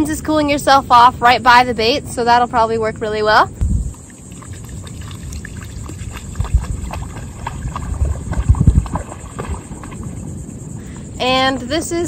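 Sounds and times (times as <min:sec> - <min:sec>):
low thumps: 0:03.6 - 0:04.0
shallow water splashing: 0:03.8 - 0:11.6.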